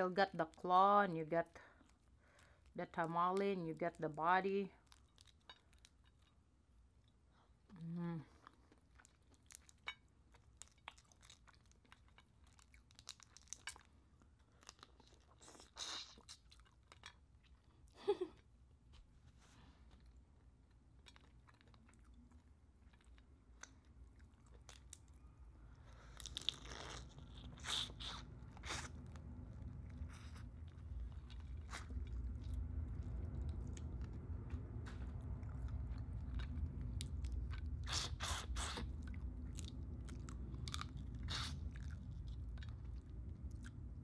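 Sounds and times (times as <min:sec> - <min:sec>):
chewing and sucking: 0:08.5 - 0:17.8, 0:25.7 - 0:44.0.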